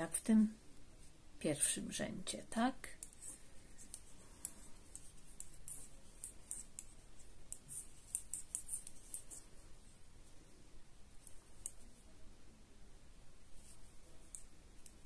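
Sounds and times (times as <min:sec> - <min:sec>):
knitting needles clicking: 0:02.9 - 0:09.5, 0:11.2 - 0:11.9, 0:13.6 - 0:15.0.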